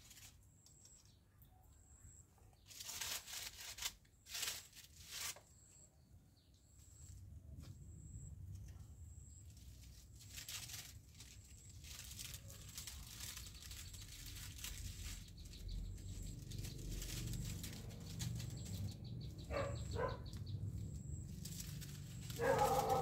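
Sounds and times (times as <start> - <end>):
faint bird chirps: 0.3 - 2.9, 5.4 - 23.0.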